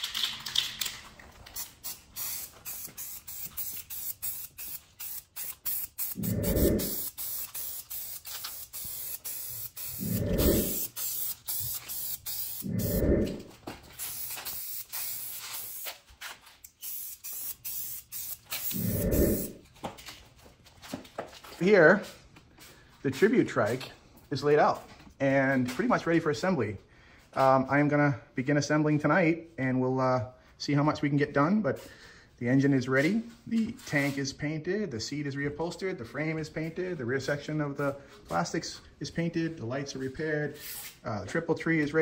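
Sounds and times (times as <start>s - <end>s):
spray-paint can hissing: 1.5s - 19.6s, 40.6s - 41.0s.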